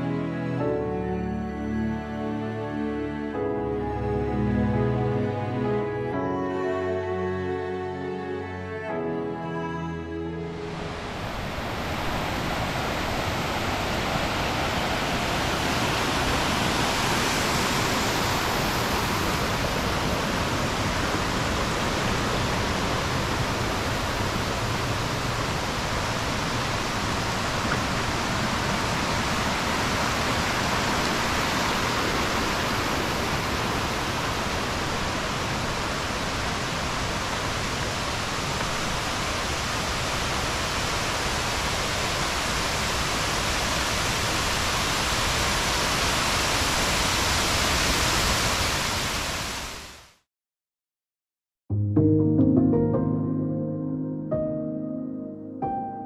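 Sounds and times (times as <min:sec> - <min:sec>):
waterfall rushing over rock: 0:10.7 - 0:50.1.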